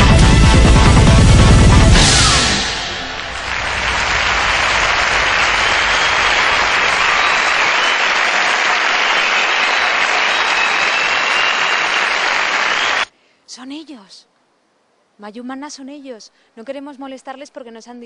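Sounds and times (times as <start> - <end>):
audience applauding: 2.6 - 13.1.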